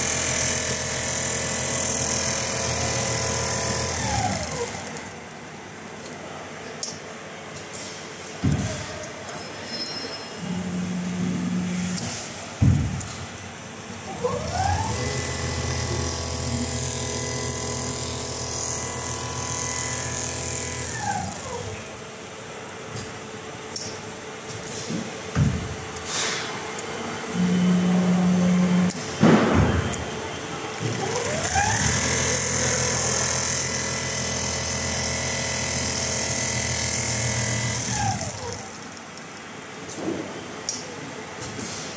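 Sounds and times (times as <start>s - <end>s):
sewing machine motor running: 0.0s - 5.2s, 14.0s - 21.9s, 30.7s - 38.9s
thump: 12.6s - 13.2s, 29.2s - 29.9s.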